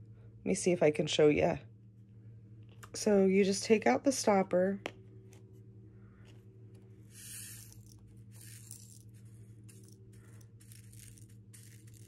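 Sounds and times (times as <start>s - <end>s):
low electrical hum: 0.0s - 12.0s
small beads poured hissing rattle: 7.1s - 12.0s.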